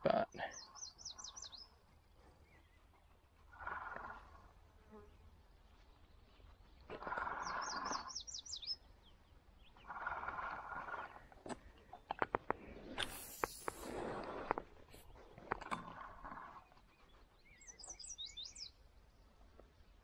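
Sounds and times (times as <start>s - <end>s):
songbird trilling: 0.5s - 1.7s, 7.0s - 8.8s, 17.4s - 18.7s
flying insect buzzing: 13.0s - 13.9s.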